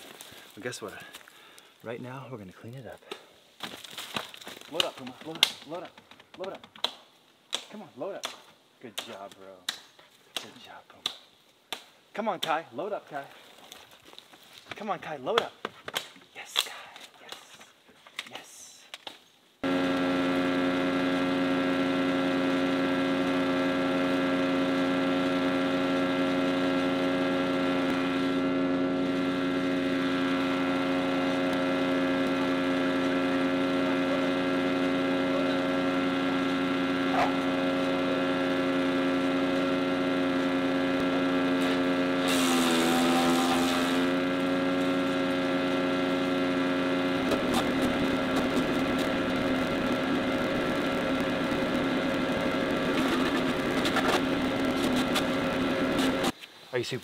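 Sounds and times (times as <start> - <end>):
branches shredding in chipper: 0.0 - 1.6, 19.6 - 56.4
wood chipper engine running: 0.0 - 1.6, 19.6 - 56.4.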